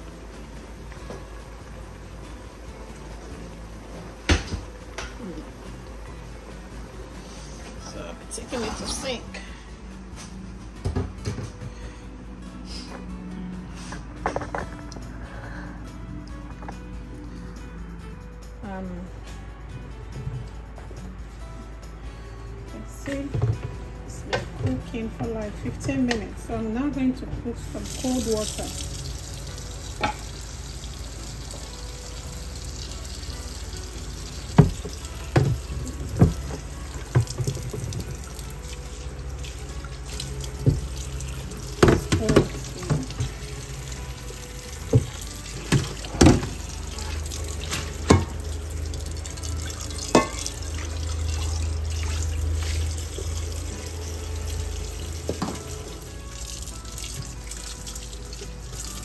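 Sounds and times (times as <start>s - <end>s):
knocks and clanks in sink: 4.2s - 5.1s, 10.8s - 11.8s, 29.9s - 30.4s, 34.4s - 38.5s, 40.6s - 41.0s, 41.7s - 43.5s, 44.7s - 46.7s, 47.6s - 48.5s, 50.0s - 50.8s, 55.2s - 55.9s
tap water running into sink: 27.6s - 59.0s.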